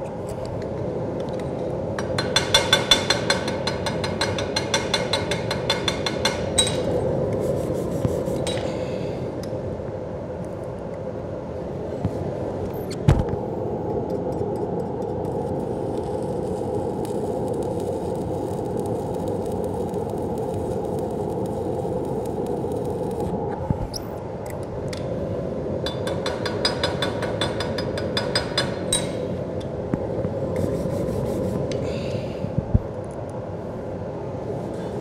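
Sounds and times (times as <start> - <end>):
welding arc crackling: 15.0 - 23.4.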